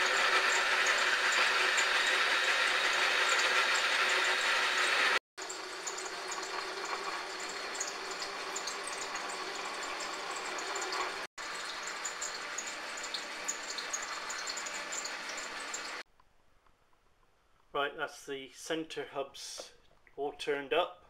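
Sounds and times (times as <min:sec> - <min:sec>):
metal lathe drilling hiss: 0:00.0 - 0:09.4.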